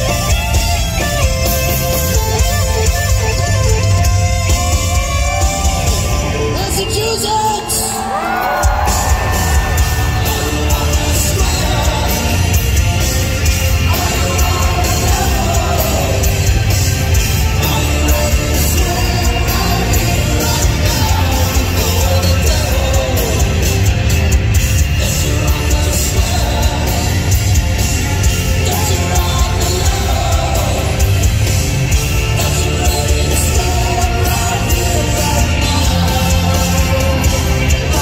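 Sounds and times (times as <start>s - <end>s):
heavy rock band playing: 0.0s - 38.0s.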